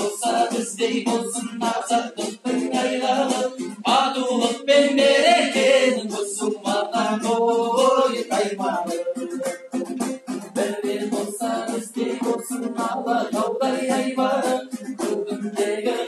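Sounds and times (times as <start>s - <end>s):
man singing: 0.0s - 9.5s
strummed lute: 0.0s - 16.0s.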